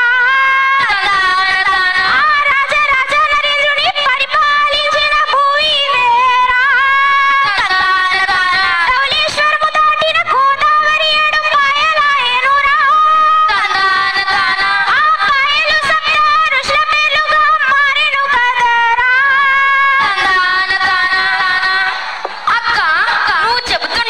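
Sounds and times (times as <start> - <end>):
girls singing into microphones: 0.0 - 24.0
percussion beats: 21.3 - 23.1.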